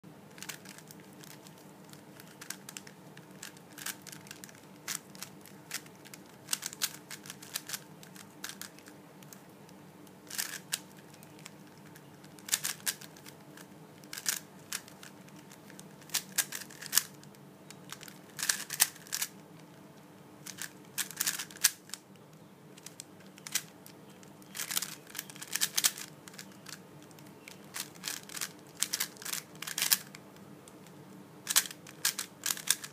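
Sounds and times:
speed cube clicking: 0.4s - 9.4s, 10.3s - 11.6s, 12.3s - 13.4s, 14.1s - 15.1s, 15.7s - 17.1s, 17.9s - 19.3s, 20.5s - 21.8s, 24.6s - 30.2s, 31.5s - 32.9s.

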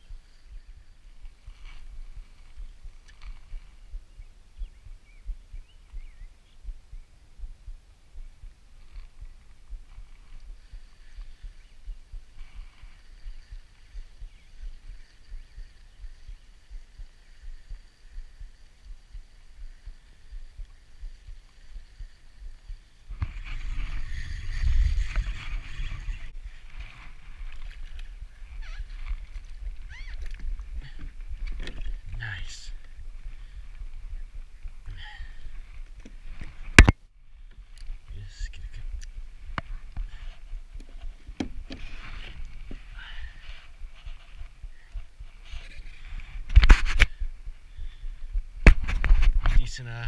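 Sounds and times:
faint bird chirps: 0.0s - 35.8s, 42.1s - 46.2s
wind buffeting microphone: 0.0s - 49.9s
rubbing and knocking of fishing rod: 39.5s - 47.2s.

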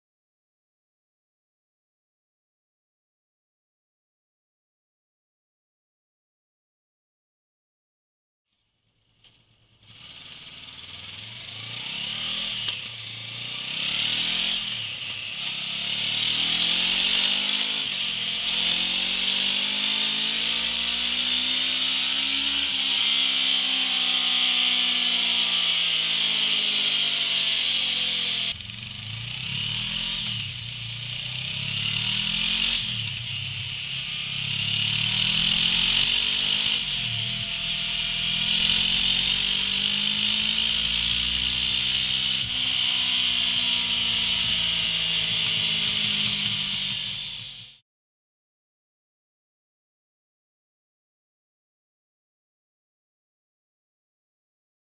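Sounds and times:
motorcycle engine revving: 9.1s - 47.8s.

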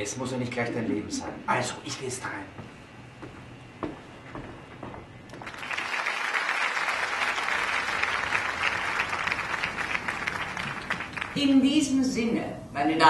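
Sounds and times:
audience clapping: 5.3s - 11.6s.

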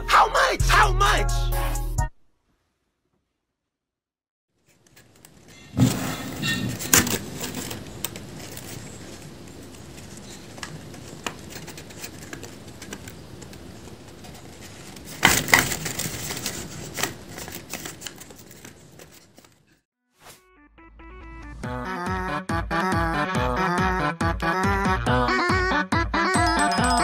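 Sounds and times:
paper crinkling and rustling: 4.6s - 19.8s.

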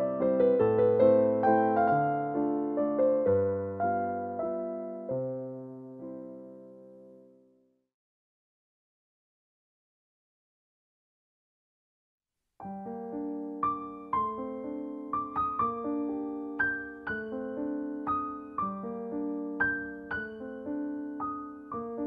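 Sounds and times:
gentle piano music: 0.0s - 7.6s, 12.6s - 22.0s.

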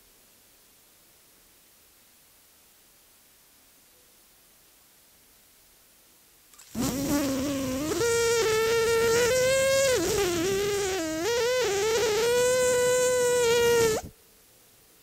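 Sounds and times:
man humming through nose: 6.8s - 14.1s.

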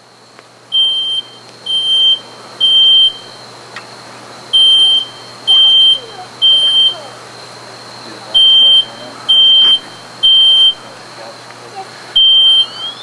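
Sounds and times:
smoke alarm beeping: 0.7s - 3.5s, 4.5s - 7.2s, 8.3s - 11.0s, 12.1s - 13.0s.

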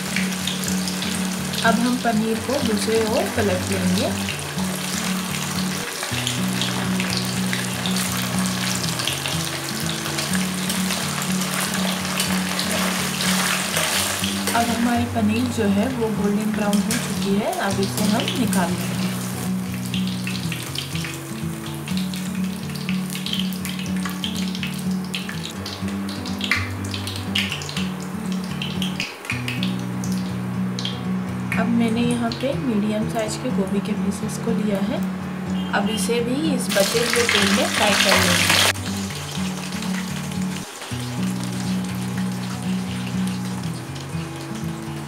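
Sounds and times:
cheese sizzling in hot oil: 0.0s - 31.0s, 36.5s - 45.0s
background music: 0.0s - 45.0s.

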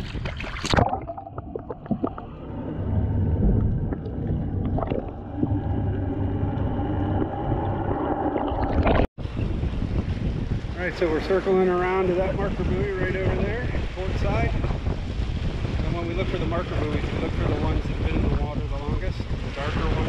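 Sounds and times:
bubbly underwater clicks: 0.0s - 2.4s, 3.4s - 9.1s
low underwater hum: 0.2s - 10.2s.

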